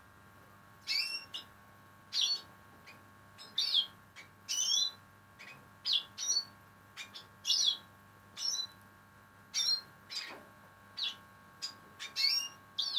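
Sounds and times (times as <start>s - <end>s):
bird chirps: 0.9s - 1.5s, 2.1s - 2.5s, 3.4s - 8.8s, 9.5s - 10.3s, 11.0s - 12.9s.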